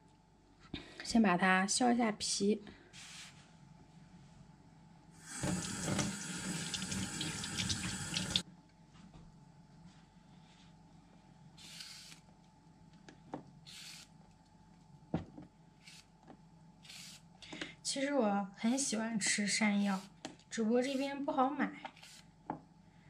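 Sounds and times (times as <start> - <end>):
kitchen tap running: 5.2 - 8.4.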